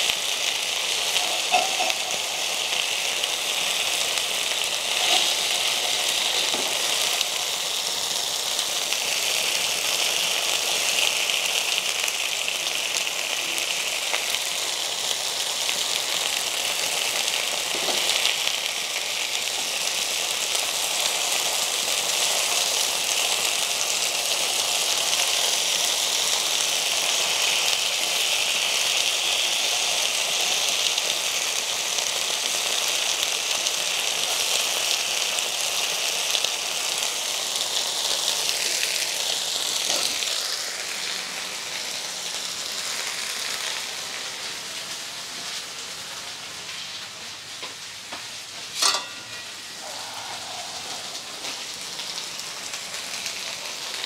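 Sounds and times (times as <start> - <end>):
chicken sizzling in oil: 0.0 - 54.0.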